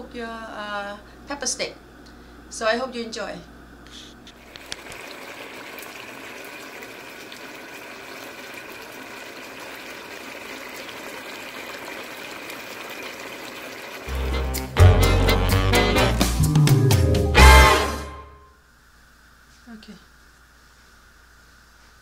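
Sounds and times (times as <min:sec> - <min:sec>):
stir-fry bubbling in a pan: 0:04.4 - 0:14.1
music: 0:14.1 - 0:18.6.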